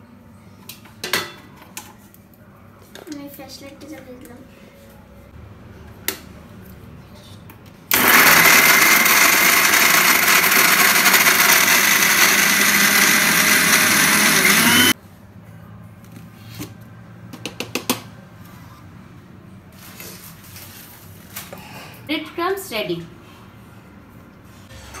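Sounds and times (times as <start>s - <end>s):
mixer grinder grinding bread: 7.9s - 15.0s.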